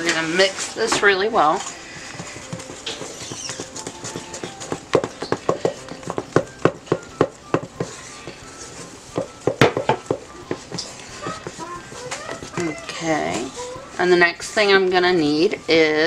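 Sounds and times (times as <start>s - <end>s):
wooden spoon stirring in metal bowl: 0.0s - 15.9s.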